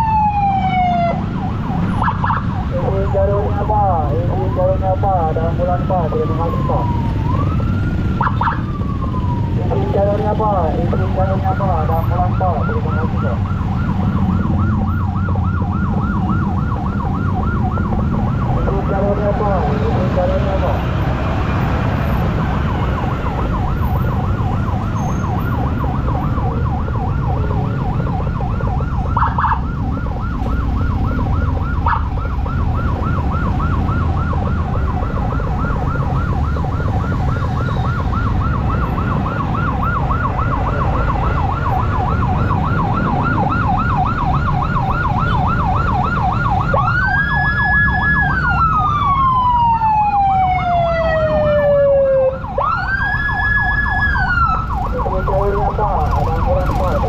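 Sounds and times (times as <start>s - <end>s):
emergency siren: 0.0s - 57.0s
engine and traffic rumble: 0.0s - 57.0s.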